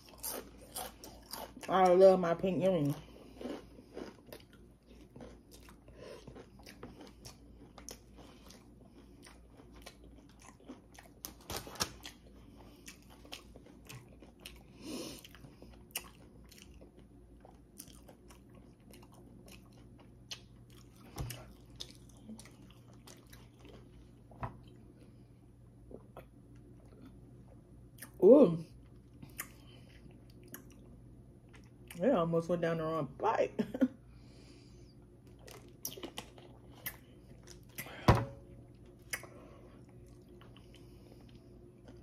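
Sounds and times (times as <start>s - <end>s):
food crunching: 0.0s - 2.0s, 2.8s - 25.1s, 35.2s - 38.0s
person chewing food: 0.0s - 2.0s, 2.9s - 32.0s, 34.2s - 42.0s.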